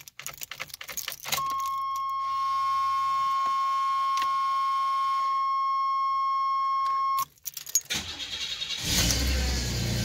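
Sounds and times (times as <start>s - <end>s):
keys jangling in ignition: 0.0s - 2.2s, 7.2s - 9.2s
high-pitched dashboard warning tone: 1.3s - 7.2s
lower warning tone: 1.3s - 7.2s.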